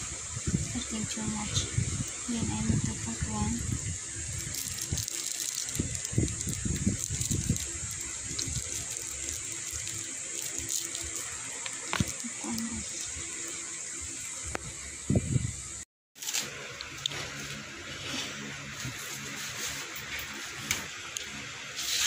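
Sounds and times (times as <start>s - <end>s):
steady hiss: 0.0s - 22.0s.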